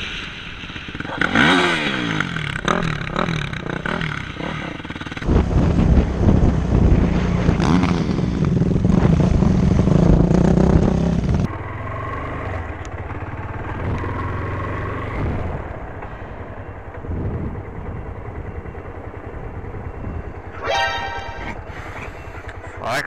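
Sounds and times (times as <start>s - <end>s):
dirt bike engine revving: 0.0s - 15.6s
motorcycle engine running: 0.1s - 20.5s
motorcycle horn: 20.6s - 21.7s.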